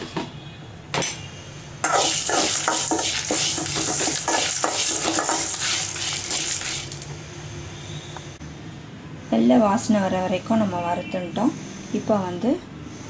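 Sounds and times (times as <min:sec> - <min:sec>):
spoon scraping dry lentils in pan: 0:01.8 - 0:07.1.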